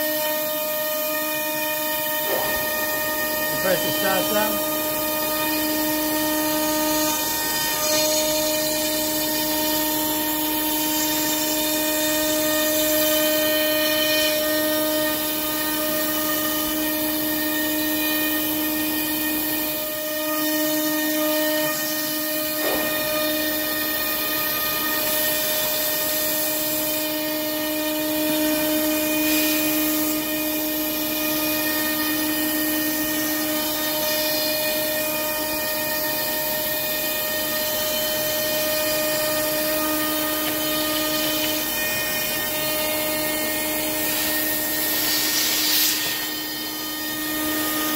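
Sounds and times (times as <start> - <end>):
low cutting noise: 0.0 - 8.8
cnc router spindle whine: 0.0 - 47.9
air hissing from nozzle: 43.2 - 46.5.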